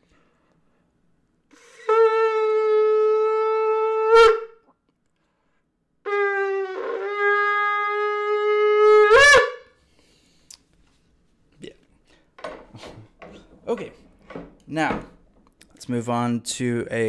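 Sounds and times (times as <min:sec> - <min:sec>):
shofar blown in long notes: 0:01.6 - 0:04.7, 0:06.0 - 0:09.8.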